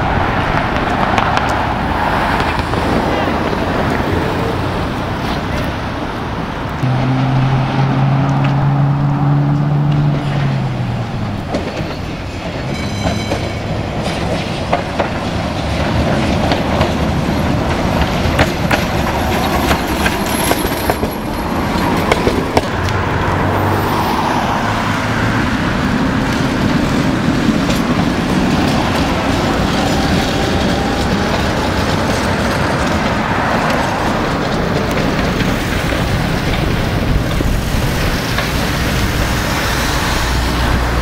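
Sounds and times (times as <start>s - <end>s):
tram running hum: 0.0s - 41.0s
high ring: 6.8s - 9.4s
wheels clicking over rail joints: 10.0s - 23.1s, 25.5s - 41.0s.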